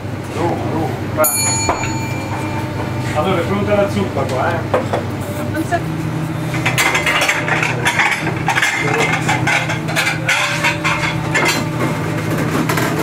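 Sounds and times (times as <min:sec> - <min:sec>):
kitchen equipment hum: 0:00.0 - 0:13.0
crockery and utensils clattering: 0:01.3 - 0:05.1, 0:06.5 - 0:13.0.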